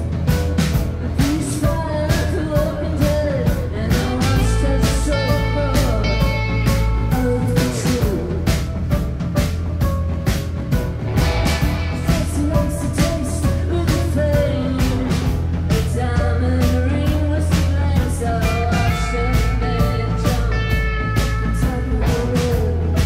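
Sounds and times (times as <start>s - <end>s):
drum kit beat: 0.0s - 23.0s
rock band playing live: 0.0s - 23.0s.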